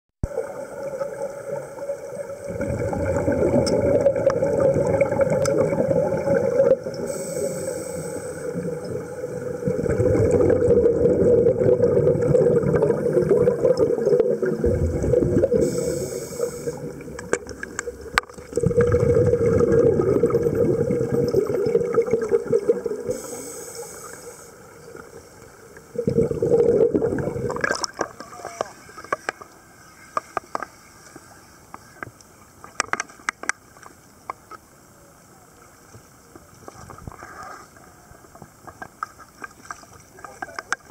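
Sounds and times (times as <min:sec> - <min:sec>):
underwater exhaled bubbles rumbling: 0:00.3 - 0:23.5, 0:24.2 - 0:28.2
hissing regulator inhalations: 0:07.0 - 0:09.4, 0:15.4 - 0:17.3, 0:23.1 - 0:24.6.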